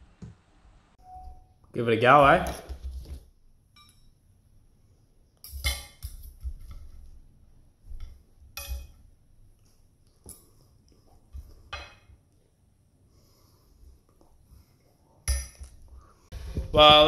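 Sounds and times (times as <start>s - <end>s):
cutlery clinking on ceramic plate: 5.5s - 6.3s, 8.0s - 9.0s, 11.7s - 12.1s, 15.3s - 15.8s.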